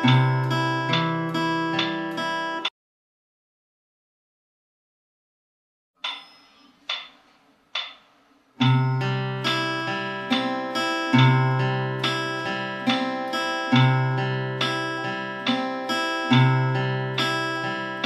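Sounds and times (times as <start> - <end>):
acoustic guitar fingerpicking: 0.0 - 2.7, 8.6 - 18.0.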